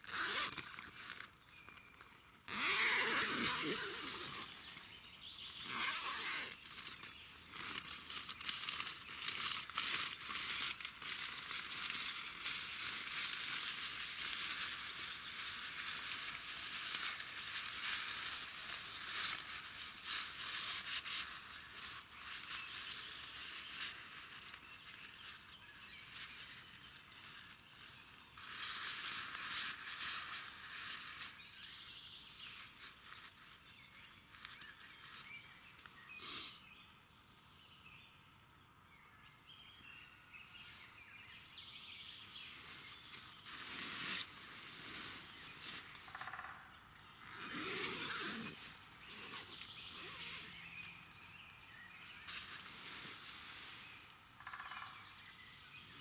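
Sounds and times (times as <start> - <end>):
tent fabric rustling: 0.0 - 1.9, 2.5 - 4.9, 5.5 - 36.5, 42.2 - 46.2, 47.2 - 54.3.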